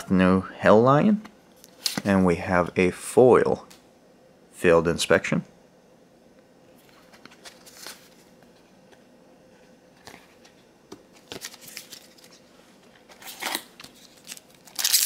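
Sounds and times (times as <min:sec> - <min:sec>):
card rustle: 0:06.8 - 0:09.0, 0:10.0 - 0:15.0.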